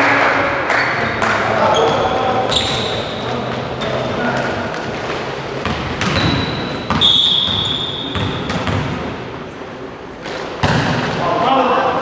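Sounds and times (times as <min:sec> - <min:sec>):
volleyball slaps and thuds: 0:05.6 - 0:09.1, 0:10.2 - 0:11.2.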